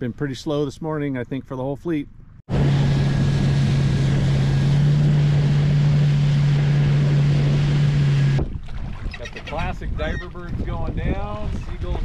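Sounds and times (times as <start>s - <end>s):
wind: 0.0s - 12.0s
boat engine humming: 2.2s - 10.4s
water noise: 2.5s - 12.0s
wind buffeting microphone: 2.5s - 12.0s.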